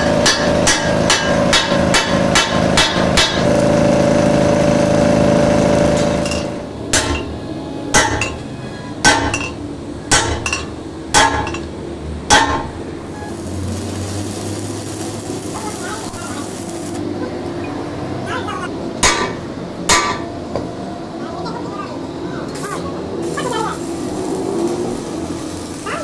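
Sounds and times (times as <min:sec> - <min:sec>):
hammer striking steel: 0:00.0 - 0:03.6, 0:05.9 - 0:08.4, 0:09.0 - 0:11.7, 0:12.3 - 0:13.4, 0:19.0 - 0:20.3
steady machine drone: 0:00.0 - 0:26.0.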